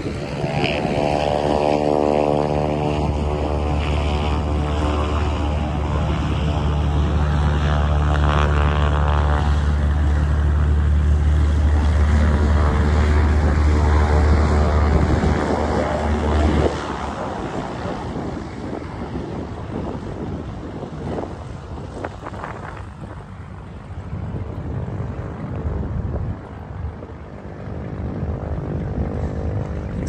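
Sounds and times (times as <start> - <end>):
propeller plane engine drone: 0.0 - 30.0
rough engine rumble: 2.4 - 30.0.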